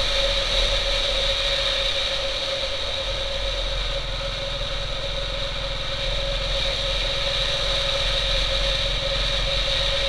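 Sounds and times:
motorcycle engine cruising: 3.0 - 10.0.

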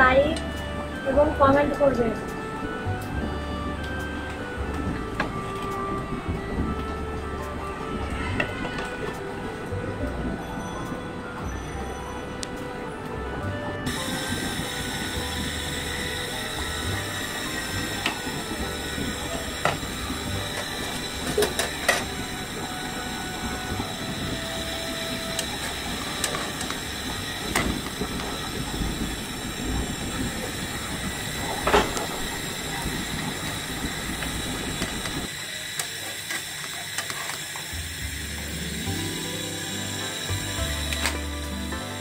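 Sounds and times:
pan hissing on stove: 13.9 - 42.0.

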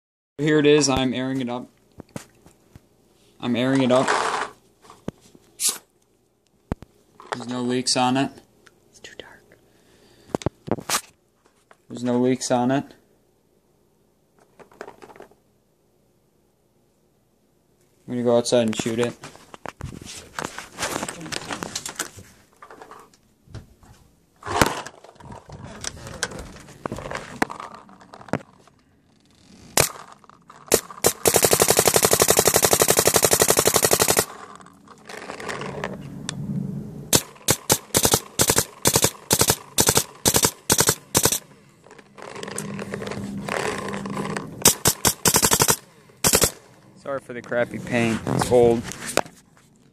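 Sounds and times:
paintball marker firing: 29.8 - 34.5, 37.1 - 41.4, 44.6 - 46.6.

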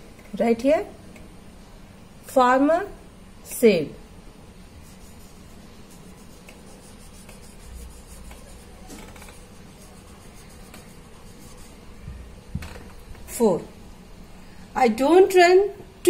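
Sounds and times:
marker writing on whiteboard: 4.8 - 11.8.

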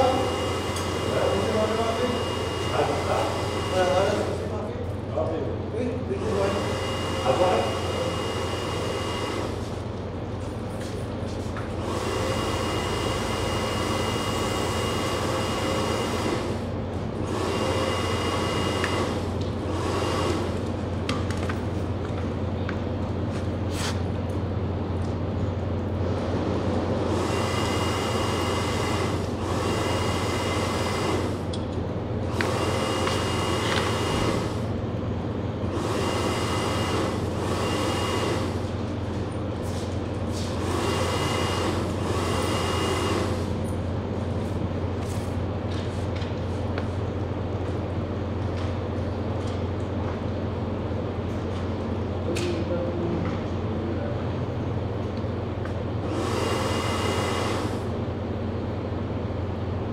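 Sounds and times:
electric motor humming: 0.0 - 4.6, 6.1 - 9.8, 11.8 - 21.0, 27.1 - 31.6, 32.2 - 34.8, 35.6 - 38.8, 40.5 - 43.6, 56.0 - 58.0.

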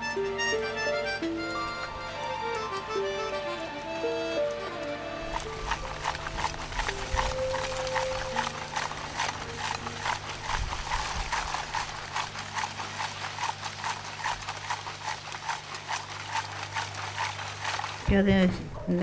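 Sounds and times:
steady low hum: 0.0 - 19.0
charcoal rattling in plastic crate: 5.2 - 18.7.

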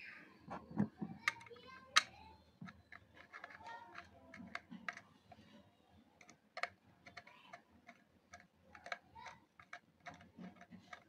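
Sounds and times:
screwdriver clicking in plastic: 2.7 - 5.1, 6.2 - 11.0.

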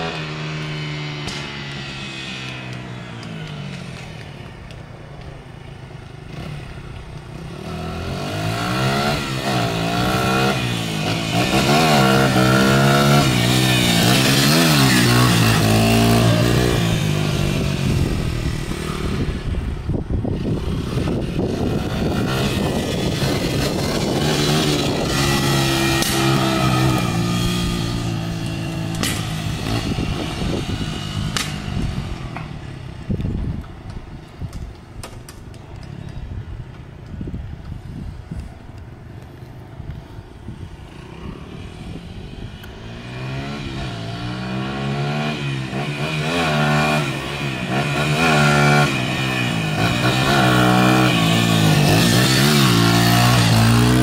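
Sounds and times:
dirt bike engine revving: 7.4 - 32.0, 42.9 - 54.0.

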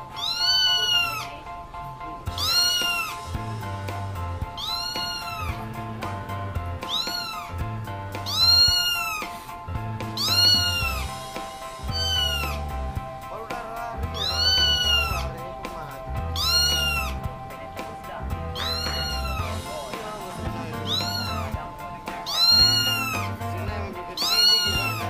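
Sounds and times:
kitten meowing: 0.1 - 1.4, 2.3 - 3.4, 4.4 - 5.8, 6.8 - 9.5, 10.1 - 11.2, 11.8 - 12.7, 14.1 - 15.4, 16.2 - 17.3, 18.5 - 19.7, 20.7 - 23.5, 24.2 - 25.0
background music with low beat: 1.6 - 25.0.

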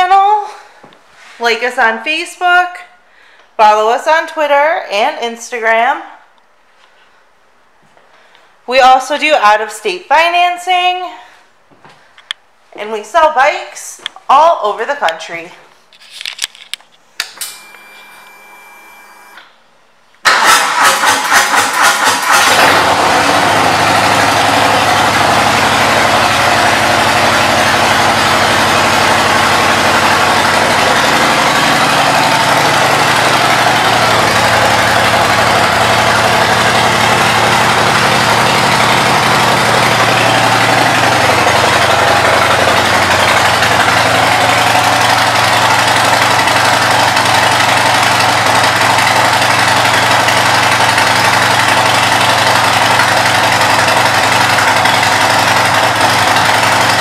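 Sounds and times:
motorcycle engine starting and idling: 20.2 - 57.0.

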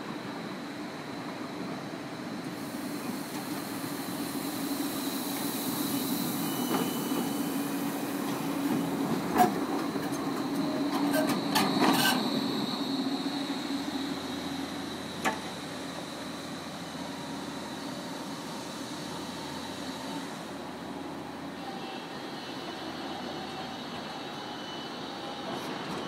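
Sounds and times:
electric tram humming: 0.0 - 26.0
tram wheels clacking: 5.4 - 13.0.

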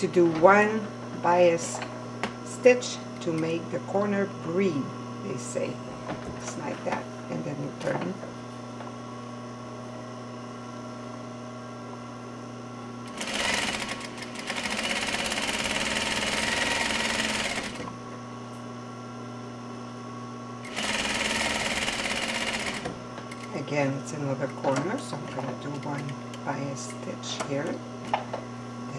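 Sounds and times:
steady low hum: 0.0 - 28.9
sewing machine stitching: 13.1 - 17.9, 20.6 - 23.6.

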